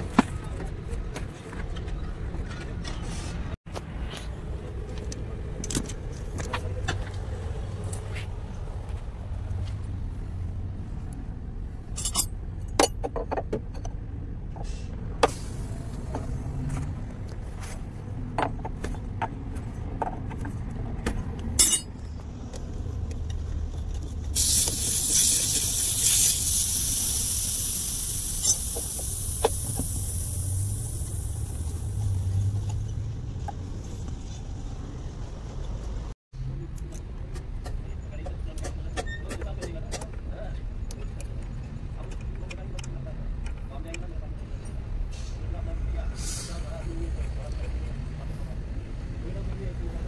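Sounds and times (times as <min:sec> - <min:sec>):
gas hissing from a fitting: 0:24.4 - 0:32.1.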